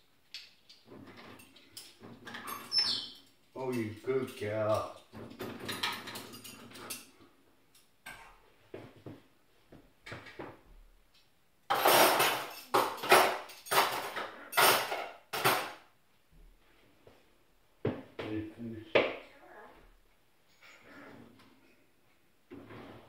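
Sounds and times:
dishes and cutlery clattering: 0.4 - 9.2, 11.7 - 15.9.

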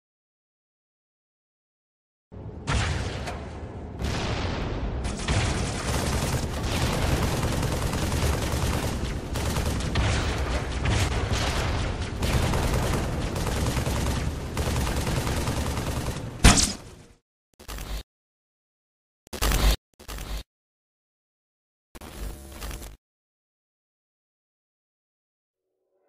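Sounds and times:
explosions: 2.6 - 14.7
rapid gunfire: 4.0 - 17.0.

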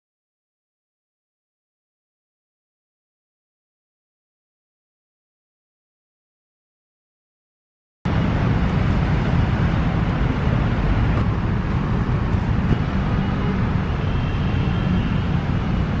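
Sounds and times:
city road traffic rumble: 8.1 - 16.0.

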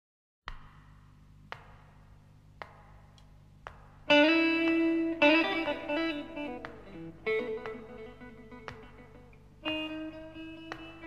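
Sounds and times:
quiet sharp taps: 0.5 - 9.9
blues guitar picking: 4.1 - 11.0.

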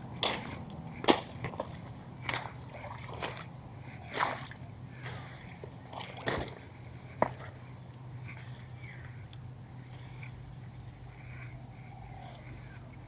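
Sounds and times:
faint low hum: 0.0 - 13.0
hand splashing through wet plants: 4.1 - 6.6.

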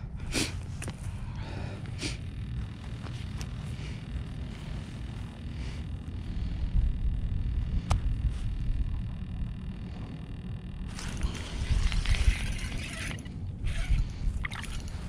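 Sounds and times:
wind rumble on microphone: 4.4 - 15.0.

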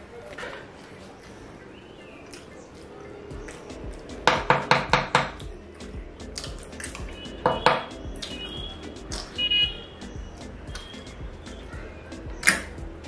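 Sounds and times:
bone knocking against table: 4.2 - 5.6, 6.4 - 8.3.

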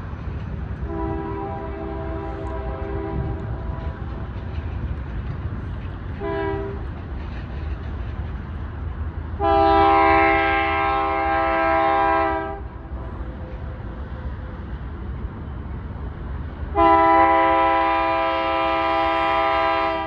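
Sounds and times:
freight train rumble: 0.0 - 20.0
locomotive air horn blasts: 0.8 - 4.0, 6.2 - 6.8, 9.4 - 12.7, 16.7 - 20.0.

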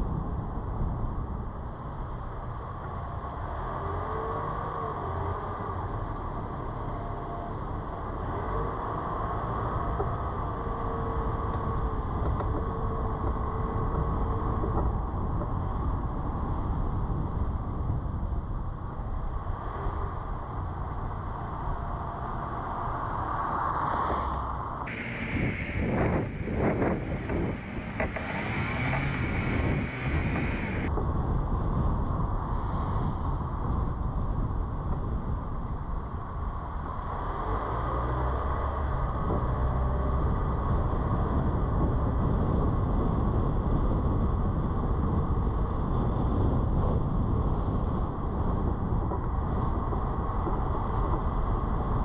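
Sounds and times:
tyres and engine rumble: 0.0 - 52.0
faint wavering whine: 24.9 - 30.9.

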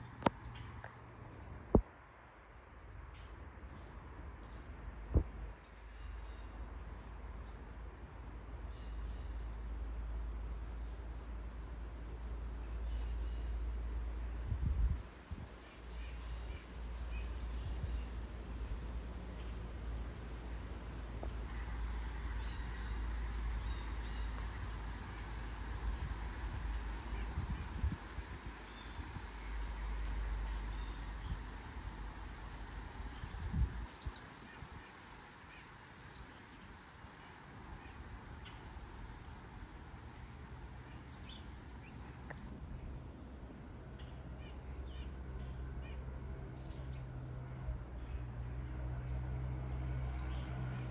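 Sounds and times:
insects trilling: 0.0 - 50.9
low rumble on microphone: 14.0 - 15.6, 16.3 - 34.2.

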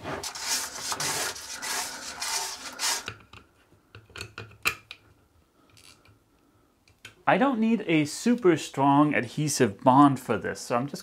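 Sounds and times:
sandpaper rubbing: 0.0 - 3.1.

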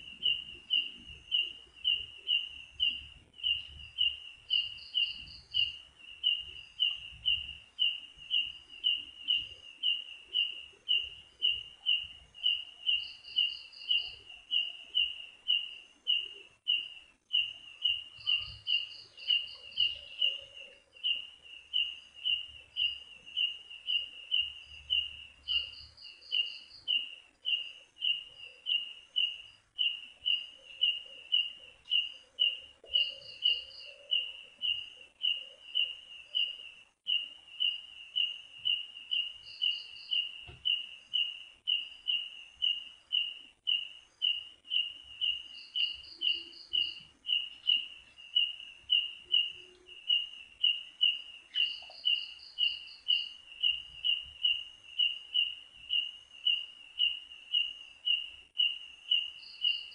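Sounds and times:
repeated short animal chirp: 21.8 - 59.9.

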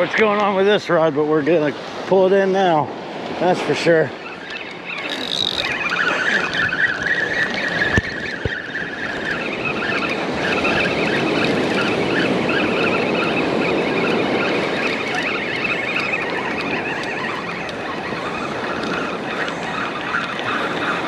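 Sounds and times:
fishing reel whirring: 4.2 - 21.0.

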